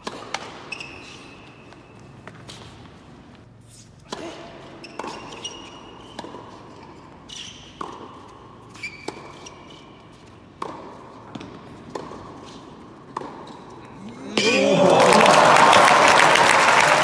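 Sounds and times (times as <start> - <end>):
shoes squeaking on court: 0.0 - 14.1
racquet striking ball: 4.1 - 9.6, 10.4 - 13.6
ball bouncing on court: 10.6 - 12.4.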